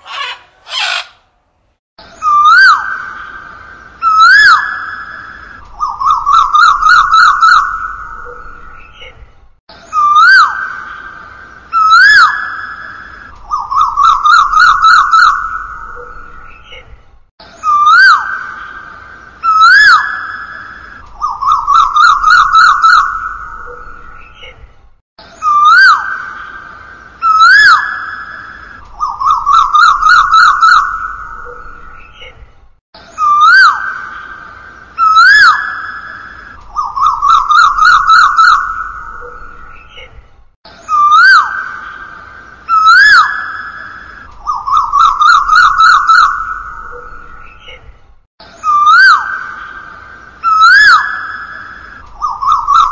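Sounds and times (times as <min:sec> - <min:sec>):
bird whistled call: 0:00.0 - 0:01.2, 0:27.2 - 0:31.8, 0:33.0 - 0:34.3, 0:35.0 - 0:39.8, 0:40.7 - 0:47.6, 0:48.5 - 0:49.8, 0:50.4 - 0:52.9
whistled bird call with echo: 0:02.0 - 0:08.7, 0:09.8 - 0:16.7, 0:17.5 - 0:24.5, 0:25.2 - 0:32.3, 0:33.0 - 0:40.0, 0:40.7 - 0:47.8, 0:48.5 - 0:52.9.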